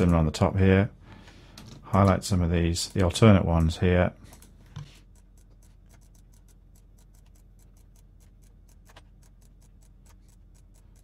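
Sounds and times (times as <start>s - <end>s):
rapid computer mouse clicks: 2.8s - 11.0s.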